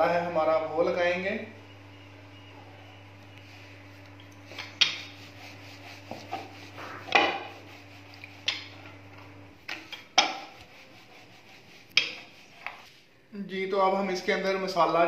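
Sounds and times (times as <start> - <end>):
rolling pin rolling over dough: 3.8 - 13.0.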